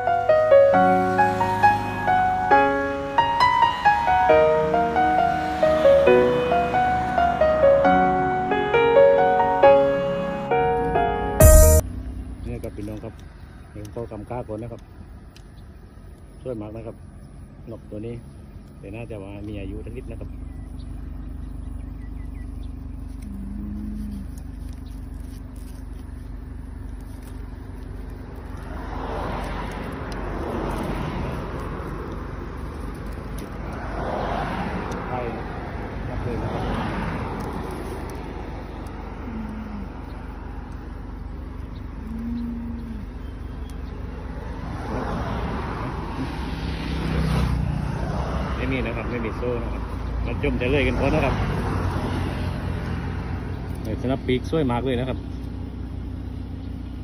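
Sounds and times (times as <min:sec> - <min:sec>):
vehicle passing close by: 0:00.0 - 0:13.0, 0:27.0 - 0:55.1
low traffic rumble: 0:00.0 - 0:57.0
brief low tone: 0:10.1 - 0:12.0, 0:42.0 - 0:43.3.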